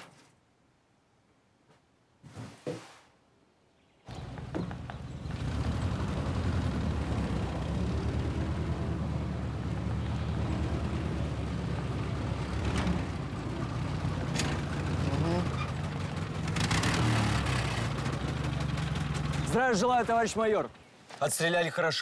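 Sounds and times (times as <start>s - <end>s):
vehicle engine running: 4.1s - 20.4s.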